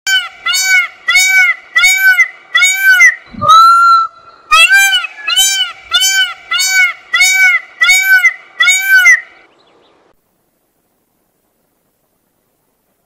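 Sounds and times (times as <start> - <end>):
peacock honking calls: 0.1 - 9.5.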